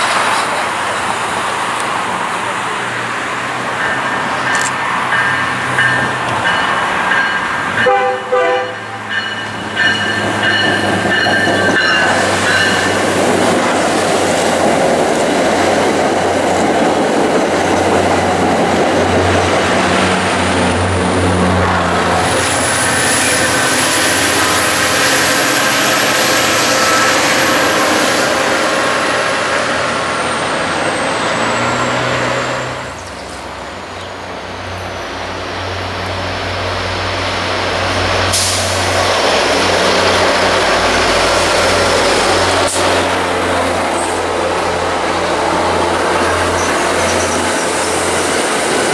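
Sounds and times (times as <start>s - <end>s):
diesel locomotive engine: 0.0s - 48.9s
train horn: 7.8s - 9.1s.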